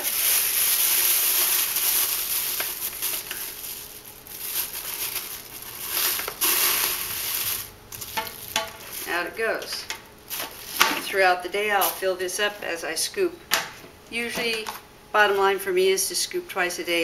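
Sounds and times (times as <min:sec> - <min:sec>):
plastic bag rustling and crinkling: 0:00.0 - 0:12.7.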